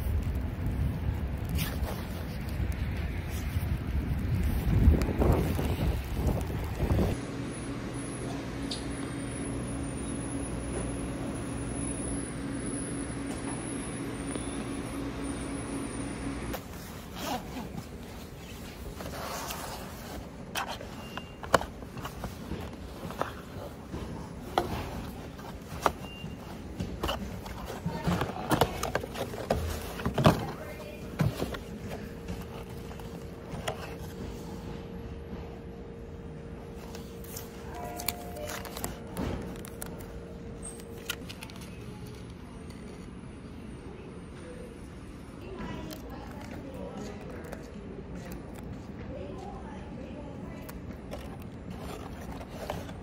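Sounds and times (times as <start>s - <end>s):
low room hum: 4.8s - 53.0s
cardboard boxes handled and opened: 16.5s - 34.9s, 36.7s - 43.1s, 50.4s - 53.0s.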